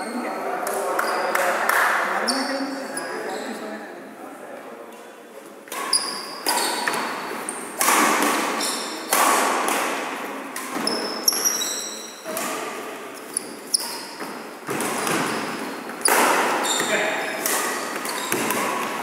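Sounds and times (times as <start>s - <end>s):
shoes squeaking on wooden floor: 5.8s - 7.7s, 8.5s - 9.0s, 10.7s - 12.4s, 13.2s - 19.0s.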